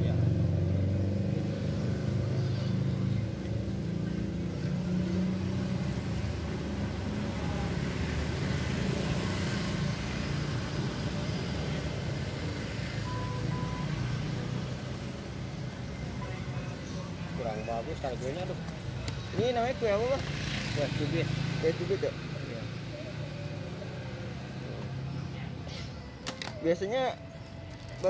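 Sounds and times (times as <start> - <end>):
road traffic noise: 0.0 - 28.0
short high beeps: 13.0 - 14.0.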